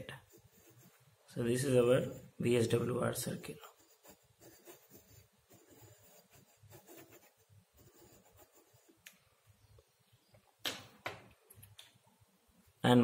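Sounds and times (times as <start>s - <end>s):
pencil scratching on paper: 0.1s - 1.0s, 1.6s - 2.4s, 3.3s - 9.0s.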